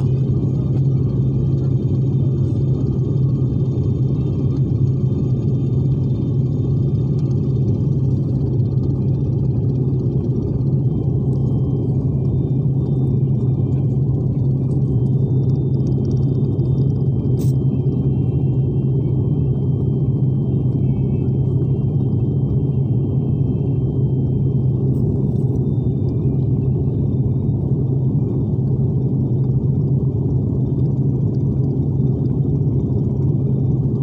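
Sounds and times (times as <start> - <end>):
constant hum: 0.0 - 34.0
jet cabin engine drone: 0.0 - 34.0.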